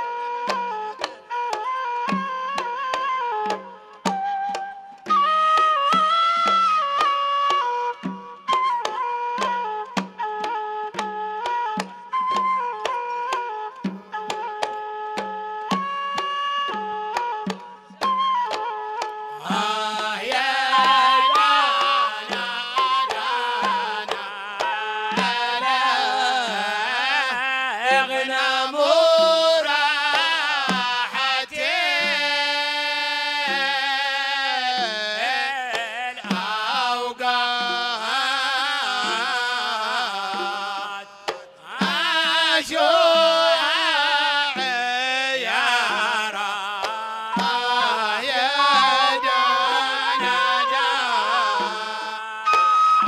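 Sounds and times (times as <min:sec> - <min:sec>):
man singing religious song: 0:19.4 - 0:52.6.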